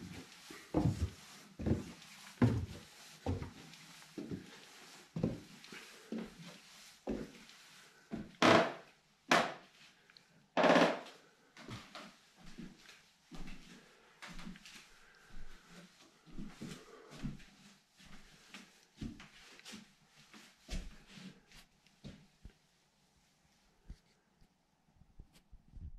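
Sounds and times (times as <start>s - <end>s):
footsteps on wooden stairs: 0.0s - 7.4s, 8.1s - 9.6s, 10.6s - 11.1s.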